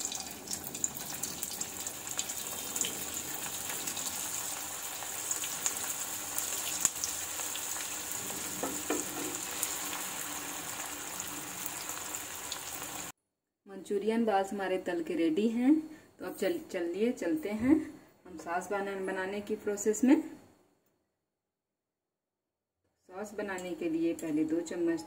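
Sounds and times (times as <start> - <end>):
food sizzling in hot oil: 0.0 - 13.1.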